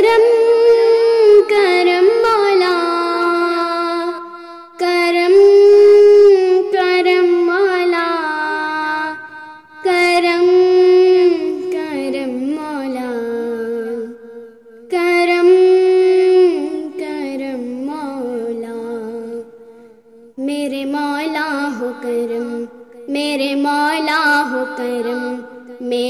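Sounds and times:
girl singing unaccompanied: 0:00.0 - 0:26.0
girl breathing: 0:04.2 - 0:04.8.

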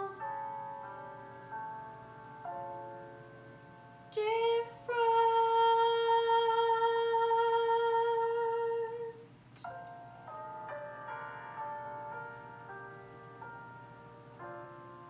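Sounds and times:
girl singing: 0:00.0 - 0:00.5, 0:04.1 - 0:09.3
piano chords: 0:00.0 - 0:15.0.

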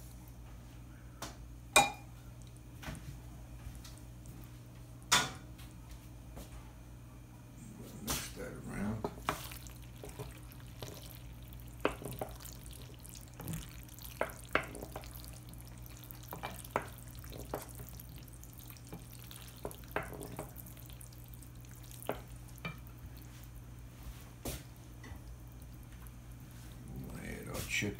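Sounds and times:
steady low hum: 0:00.0 - 0:27.9
spoon stirring thick sauce: 0:08.8 - 0:23.5.

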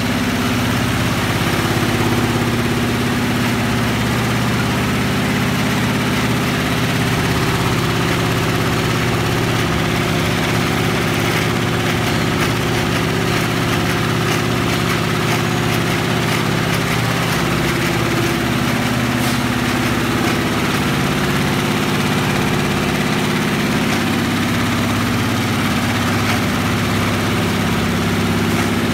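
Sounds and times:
embroidery machine humming: 0:00.0 - 0:28.9
fast needle clatter: 0:08.1 - 0:18.4.

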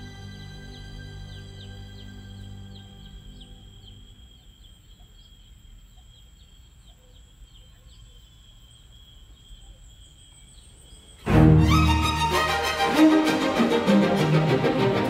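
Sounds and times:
insect chirps: 0:00.0 - 0:11.3
insect drone: 0:00.0 - 0:15.0.

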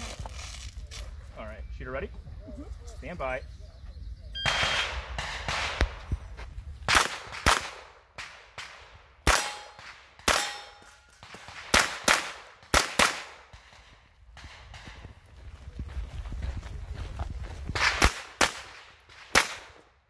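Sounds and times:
rifle gunshots: 0:04.4 - 0:06.1, 0:06.9 - 0:15.0, 0:17.8 - 0:19.8.

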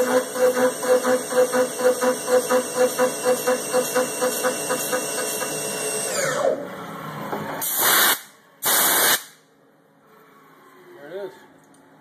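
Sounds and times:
loud bursts of hiss: 0:07.6 - 0:09.4.

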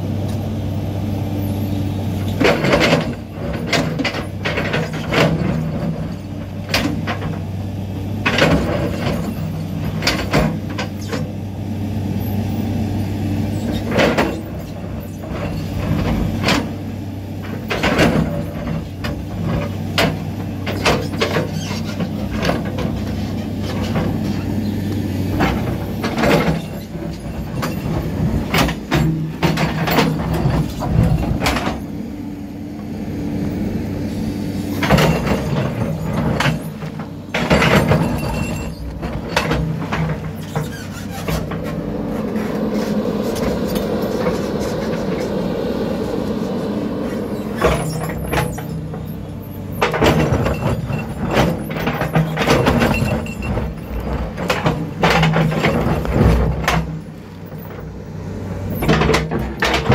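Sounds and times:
bulldozer diesel engine under load: 0:00.0 - 0:59.9
steel tracks squealing and clanking: 0:08.2 - 0:11.3, 0:12.2 - 0:32.1, 0:34.1 - 0:59.9
sharp knocks and clanks: 0:34.8 - 0:45.3, 0:49.8 - 0:57.0, 0:58.8 - 0:59.9.

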